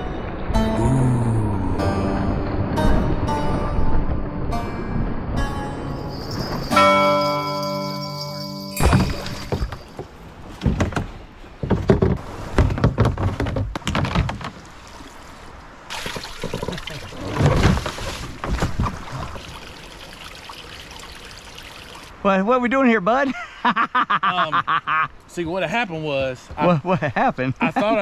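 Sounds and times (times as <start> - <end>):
water splashing and trickling: 5.8 - 22.3
kayak knocking and thumping: 8.8 - 14.8, 15.9 - 19.4.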